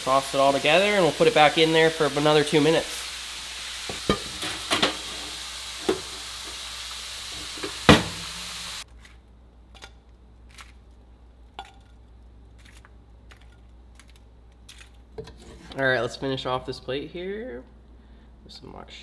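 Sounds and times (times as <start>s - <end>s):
pan sizzling: 0.0s - 8.9s.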